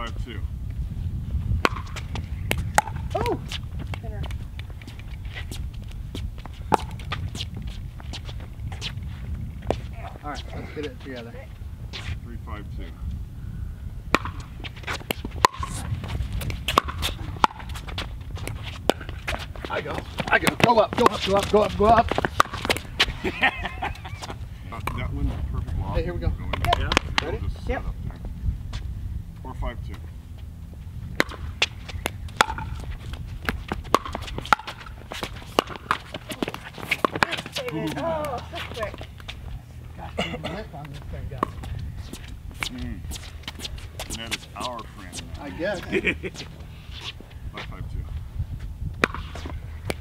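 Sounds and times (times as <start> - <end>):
steady low rumble: 0.0 - 50.0
paddles striking pickleball: 1.6 - 3.3, 6.5 - 7.2, 14.1 - 15.8, 16.4 - 23.2, 26.5 - 27.3, 31.2 - 39.4, 49.0 - 50.0
shoes scuffing on hard court: 14.4 - 23.2, 31.6 - 39.5.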